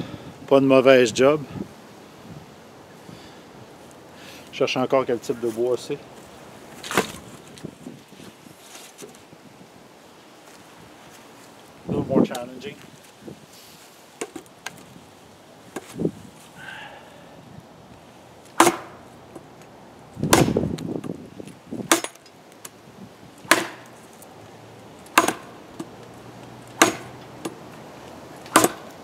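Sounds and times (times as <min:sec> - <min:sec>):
machete striking wood: 0:06.8 - 0:07.2, 0:18.6 - 0:19.0, 0:20.2 - 0:21.1, 0:21.8 - 0:22.2, 0:23.4 - 0:24.0, 0:25.1 - 0:25.9, 0:26.7 - 0:27.6, 0:28.5 - 0:29.0.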